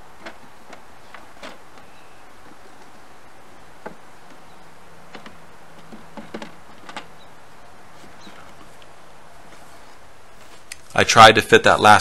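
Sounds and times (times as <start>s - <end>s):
wooden frames knocking: 0.0s - 10.6s
honeybees humming: 0.0s - 10.7s.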